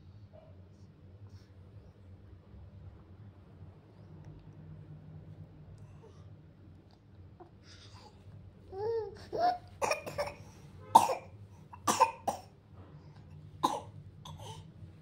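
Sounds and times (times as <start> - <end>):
baby cooing: 8.7 - 10.4.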